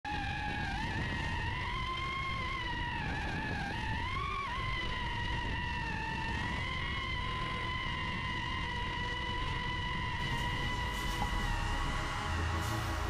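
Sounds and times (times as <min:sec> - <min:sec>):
low rumble of wind: 0:00.1 - 0:13.0
drone motors whining: 0:06.2 - 0:13.0.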